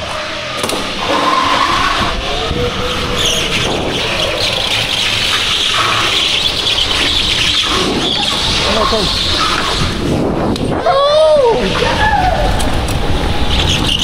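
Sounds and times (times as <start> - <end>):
go-kart engine running: 0.0 - 10.8, 11.6 - 14.0
tyres squealing on floor: 1.0 - 10.0.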